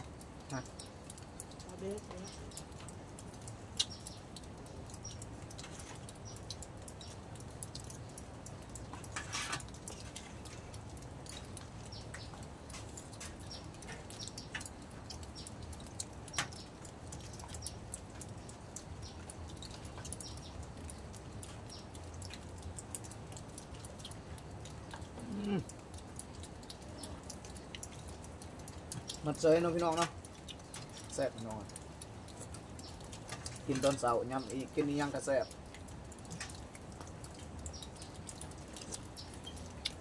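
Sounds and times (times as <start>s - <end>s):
small clicks: 0.0s - 29.2s.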